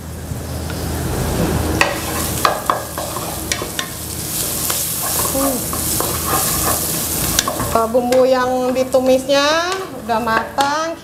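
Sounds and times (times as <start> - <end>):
spice paste sizzling in oil: 0.0 - 11.0
spatula scraping pan: 1.8 - 8.8.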